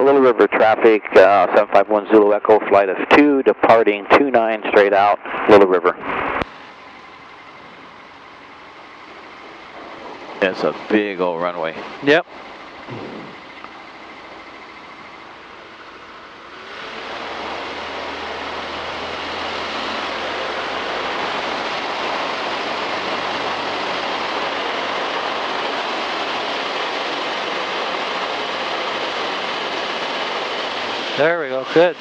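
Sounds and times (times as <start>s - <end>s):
light aircraft engine and propeller: 0.0s - 32.0s.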